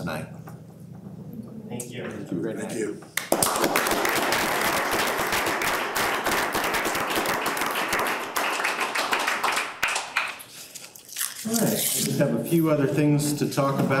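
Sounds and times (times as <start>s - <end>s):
crowd applauding: 3.2s - 10.5s.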